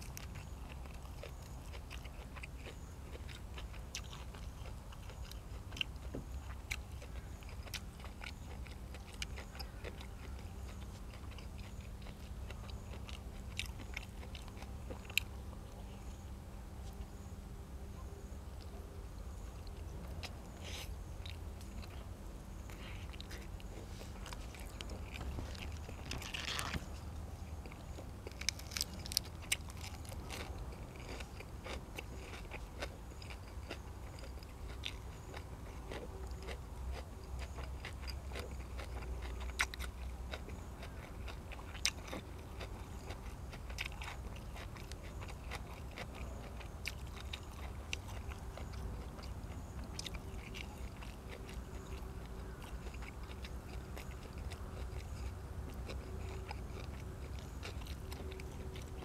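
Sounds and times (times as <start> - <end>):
wet chewing: 0.0 - 16.0, 18.6 - 59.0
low steady hum: 0.0 - 59.0
sharp clicks and crunches: 22.6 - 59.0.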